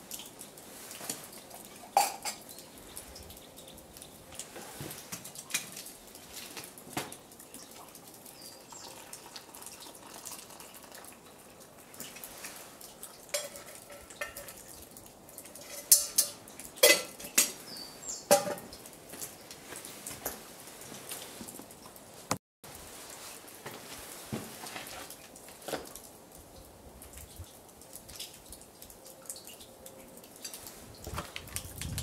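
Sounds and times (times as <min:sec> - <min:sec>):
metal pot clanking: 0:01.9 - 0:02.4, 0:13.3 - 0:14.7, 0:15.5 - 0:17.6, 0:18.2 - 0:18.7
water pouring into mug: 0:07.9 - 0:11.5
metal pot lid clinking: 0:15.6 - 0:17.6, 0:18.3 - 0:18.7.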